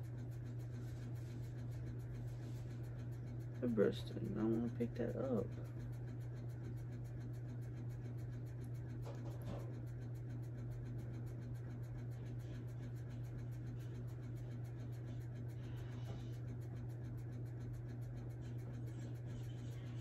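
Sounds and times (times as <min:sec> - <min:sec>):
steady low hum: 0:00.0 - 0:20.0
makeup brush scratching: 0:00.5 - 0:02.9, 0:03.6 - 0:05.8, 0:18.3 - 0:20.0.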